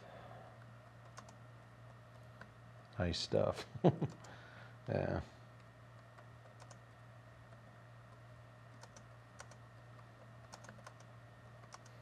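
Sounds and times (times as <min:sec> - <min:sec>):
steady low hum: 0:00.0 - 0:12.0
laptop keyboard typing: 0:01.0 - 0:01.4, 0:06.2 - 0:06.8, 0:08.7 - 0:09.6, 0:10.4 - 0:12.0.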